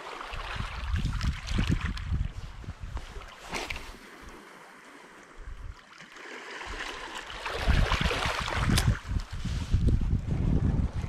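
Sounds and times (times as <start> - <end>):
sea water washing and splashing: 0.0 - 2.2, 3.2 - 9.2
wind gusting on microphone: 0.4 - 3.8, 6.7 - 11.0.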